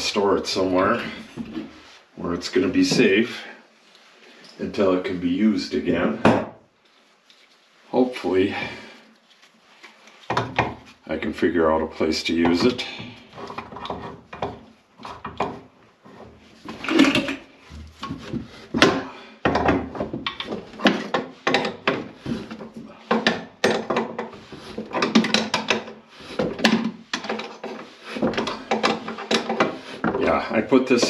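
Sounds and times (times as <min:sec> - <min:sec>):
wooden objects knocking and scraping: 0:00.5 - 0:01.9, 0:02.6 - 0:03.3, 0:05.9 - 0:06.6, 0:10.2 - 0:11.0, 0:12.2 - 0:31.0.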